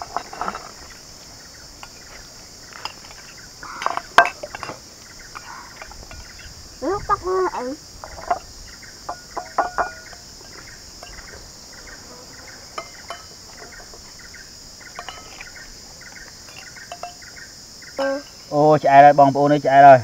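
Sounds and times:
insects chirping: 0:00.0 - 0:20.0.

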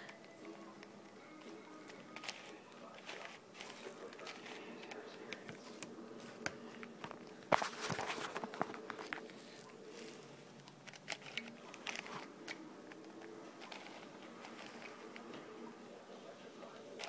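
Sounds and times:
puzzle cube clacking: 0:00.0 - 0:15.8.

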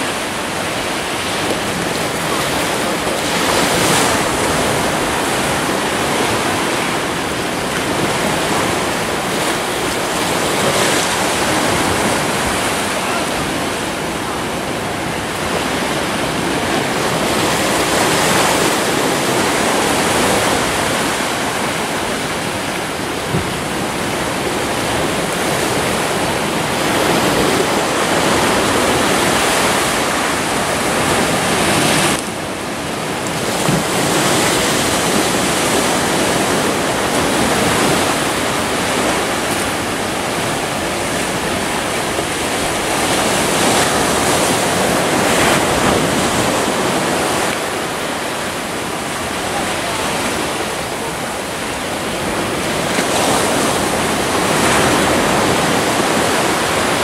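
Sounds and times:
sea waves washing among rocks: 0:00.0 - 0:57.0.

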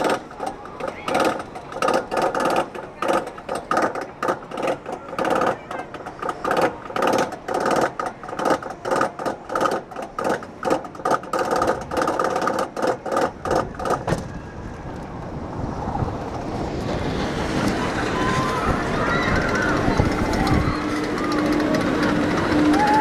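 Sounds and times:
steady rushing noise: 0:00.0 - 0:23.0
chain lift clanking: 0:19.4 - 0:23.0.

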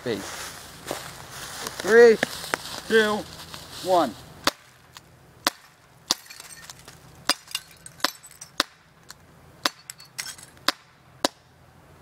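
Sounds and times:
glass vase shattering: 0:06.1 - 0:08.6, 0:09.7 - 0:10.5.

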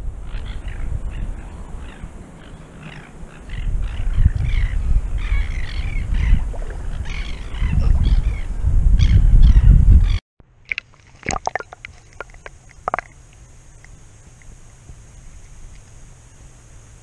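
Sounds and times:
wind buffeting microphone: 0:00.0 - 0:10.2
birds calling: 0:00.3 - 0:10.2.

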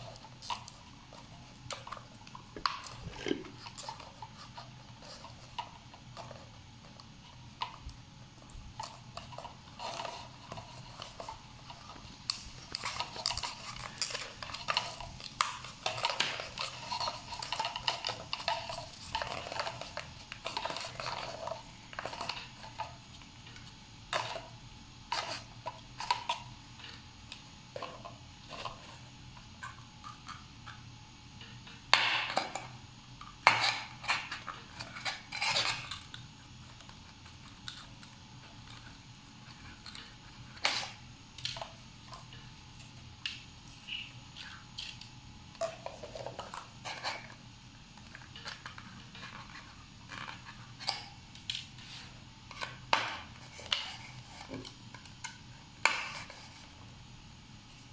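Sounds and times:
paper cups tapping and scraping: 0:00.0 - 0:27.0, 0:45.6 - 0:51.0, 0:51.6 - 0:56.8.

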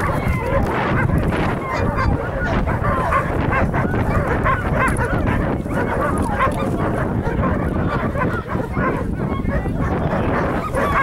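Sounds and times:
dog yipping and whining: 0:00.0 - 0:11.0.

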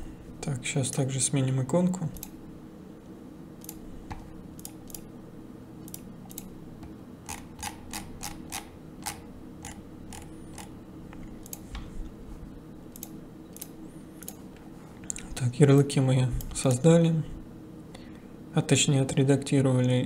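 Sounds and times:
steady low hum: 0:00.0 - 0:20.0
computer mouse clicking: 0:03.6 - 0:05.1, 0:05.8 - 0:06.5, 0:07.3 - 0:11.9, 0:12.9 - 0:15.3.

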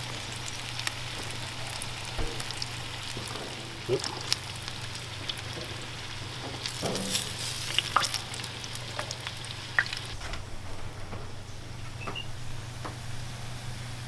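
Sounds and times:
oil sizzling: 0:00.0 - 0:10.7.

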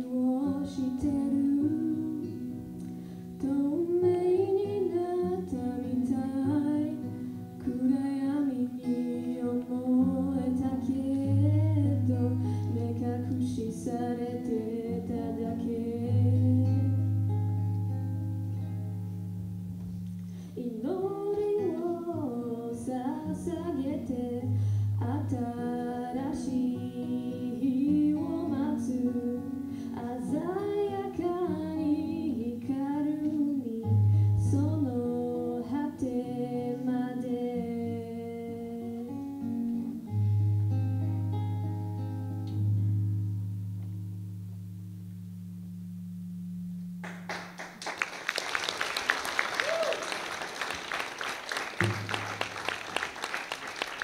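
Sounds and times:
woman singing into microphone: 0:00.0 - 0:02.8, 0:03.4 - 0:17.0, 0:20.6 - 0:39.6
acoustic guitar: 0:00.0 - 0:48.1, 0:48.9 - 0:54.0.

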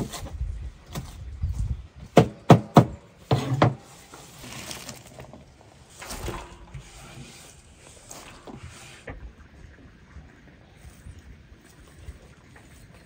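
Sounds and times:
rustle of cabbage leaves: 0:03.8 - 0:09.1.

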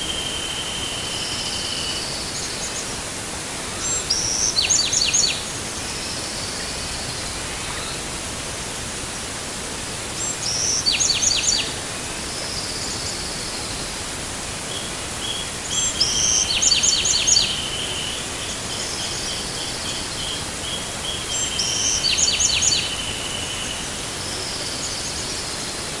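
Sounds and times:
background hiss: 0:00.0 - 0:26.0
wren singing: 0:03.8 - 0:06.8, 0:10.2 - 0:11.7, 0:14.7 - 0:25.7.

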